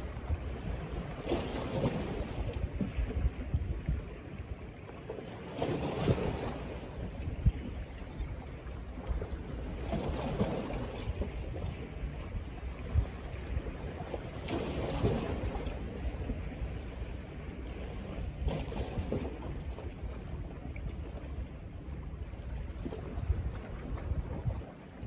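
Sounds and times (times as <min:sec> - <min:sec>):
wind buffeting microphone: 0:00.0 - 0:04.5, 0:06.0 - 0:14.4, 0:18.2 - 0:25.0.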